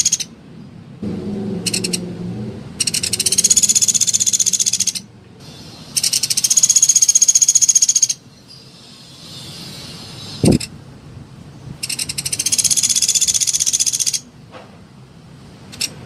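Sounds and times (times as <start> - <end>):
woodpecker trilling: 0.0 - 0.3, 1.7 - 2.0, 2.8 - 10.7, 11.8 - 14.3.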